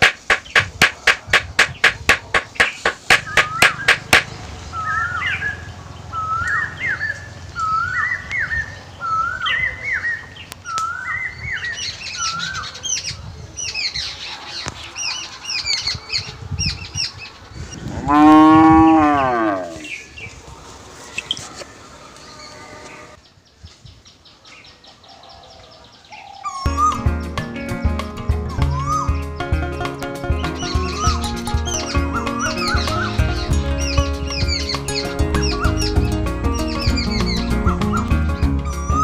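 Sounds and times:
hammer taps: 0.0s - 4.3s
bird calling: 0.0s - 5.4s, 30.5s - 39.0s
high bird chirps: 0.0s - 5.4s
cow mooing: 18.0s - 19.9s.

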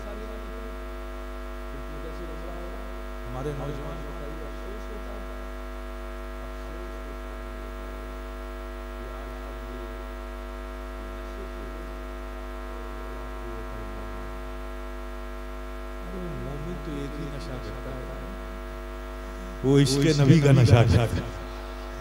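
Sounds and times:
electrical mains hum and buzz: 0.0s - 22.0s.

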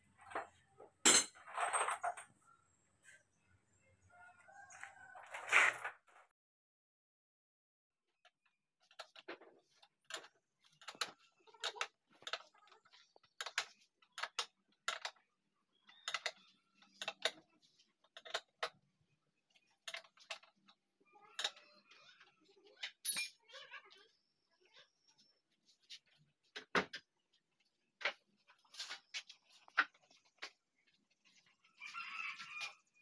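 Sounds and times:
metal parts clicking and knocking: 8.8s - 15.2s.

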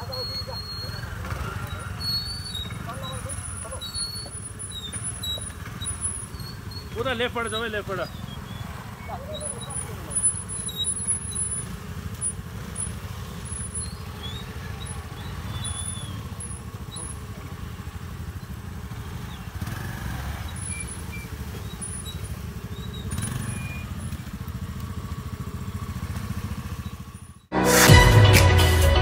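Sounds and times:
scooter engines running: 0.0s - 29.0s.

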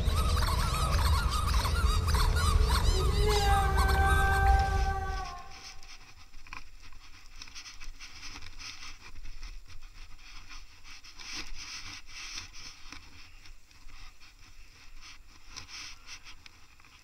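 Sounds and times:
low rumble: 0.0s - 5.9s
wind: 0.0s - 17.0s.

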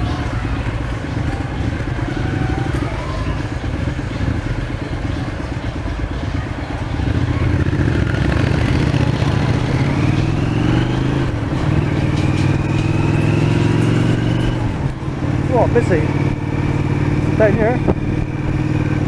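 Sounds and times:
rising engine whine: 0.0s - 19.0s
aircraft engines droning: 8.3s - 19.0s.

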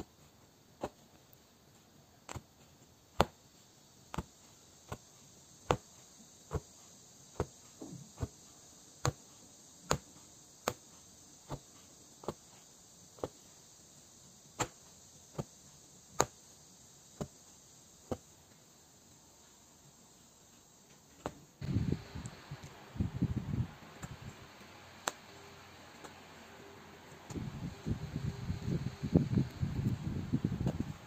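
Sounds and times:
punch needle clicking through fabric: 2.2s - 13.5s, 14.5s - 16.5s, 25.0s - 25.3s.

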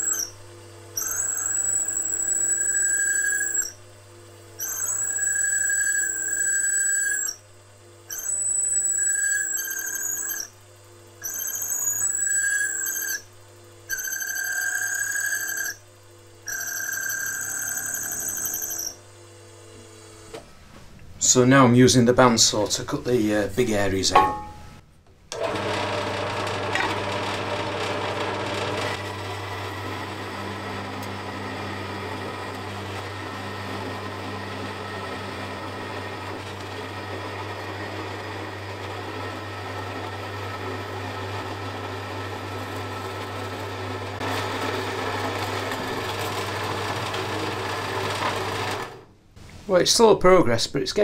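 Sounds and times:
bandsaw cutting metal: 0.0s - 0.3s, 1.0s - 3.8s, 8.1s - 10.5s, 11.2s - 13.3s, 25.4s - 49.0s.

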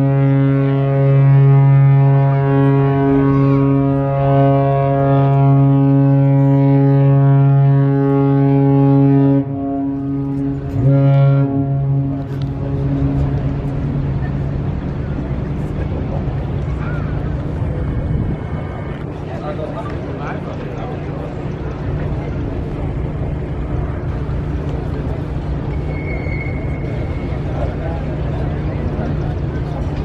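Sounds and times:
deep ship's horn blast: 0.0s - 19.2s.

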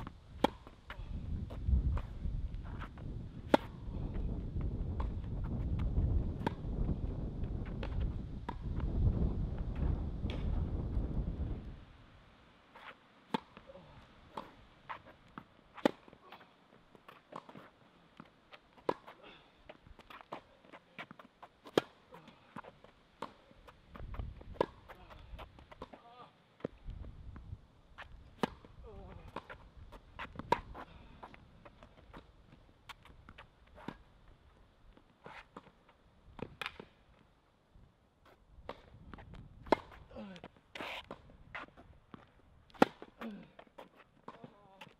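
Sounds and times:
tennis ball bouncing: 0.0s - 0.8s, 3.5s - 3.8s, 12.8s - 13.6s, 14.3s - 16.2s, 18.5s - 19.2s, 20.0s - 22.0s, 23.2s - 26.0s, 28.4s - 28.7s, 29.3s - 31.3s, 39.6s - 40.0s, 42.7s - 43.2s
tennis ball hitting racket: 0.0s - 0.8s, 3.5s - 3.8s, 12.8s - 13.6s, 14.3s - 16.2s, 20.1s - 22.1s, 23.2s - 26.0s, 28.4s - 28.7s, 29.3s - 30.8s, 36.4s - 36.9s, 42.7s - 43.2s.

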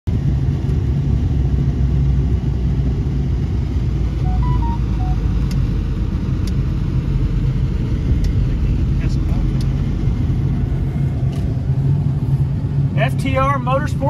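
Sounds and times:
vehicle engine and road noise: 0.1s - 14.0s
short faint beeps: 4.2s - 5.3s.

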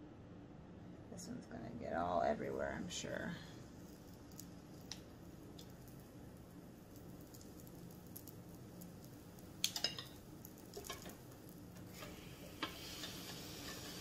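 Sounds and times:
batter sizzling: 3.0s - 14.0s
metal spoon clinking and scraping: 9.6s - 11.3s.

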